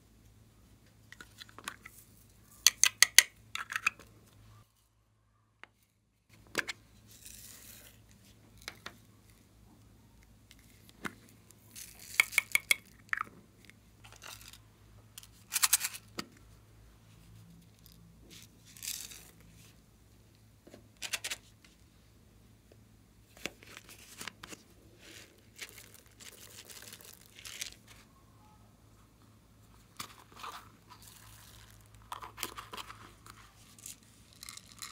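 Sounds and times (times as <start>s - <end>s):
plastic crinkling and rattling: 23.4s - 28.0s, 29.9s - 34.9s.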